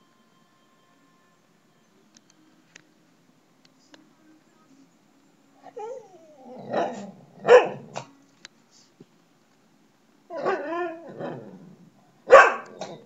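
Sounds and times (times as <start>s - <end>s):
dog whining: 5.6s - 8.1s, 10.3s - 13.0s
dog barking: 6.6s - 8.1s, 12.3s - 13.0s.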